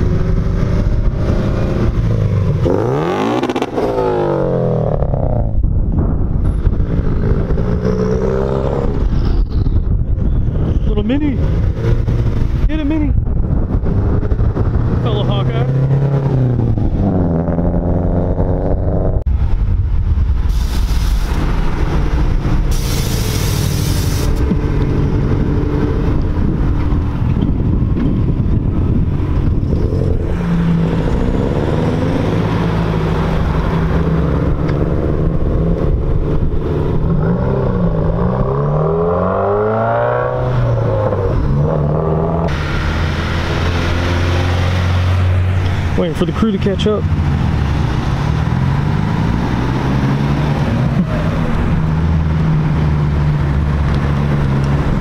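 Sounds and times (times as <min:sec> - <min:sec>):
cars revving past: 0:00.0 - 0:05.6, 0:06.8 - 0:09.2, 0:29.2 - 0:55.0.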